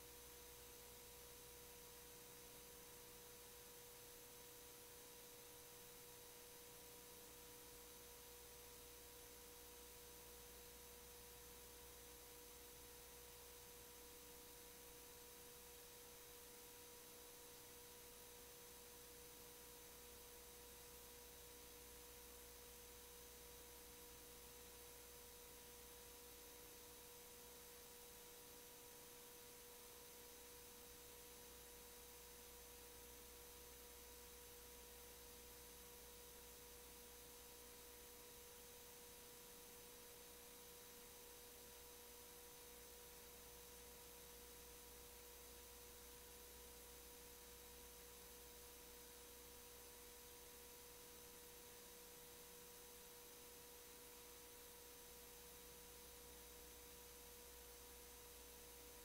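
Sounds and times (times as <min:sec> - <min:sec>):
faint steady hiss: 0:00.0 - 0:59.0.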